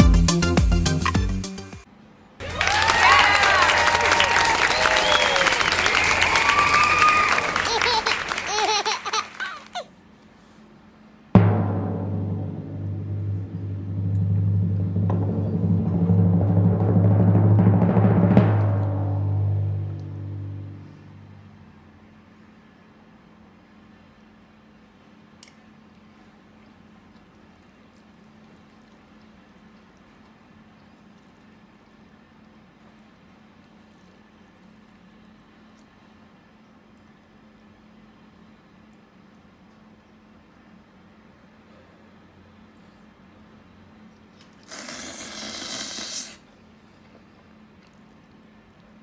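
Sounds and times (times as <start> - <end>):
steady low hum: 10.2 - 44.4
burst of steady hiss: 44.6 - 46.5.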